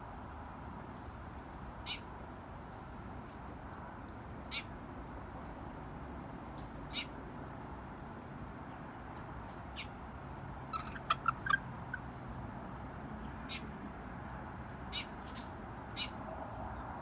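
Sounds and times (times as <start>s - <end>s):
faint background noise: 0.0s - 17.0s
chicks peeping: 10.7s - 12.2s.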